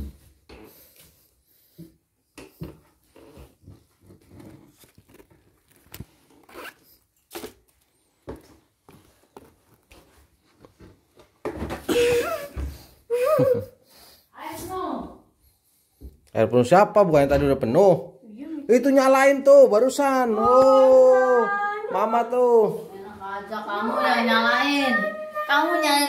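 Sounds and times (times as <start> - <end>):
clothes rustling: 2.6 - 11.4.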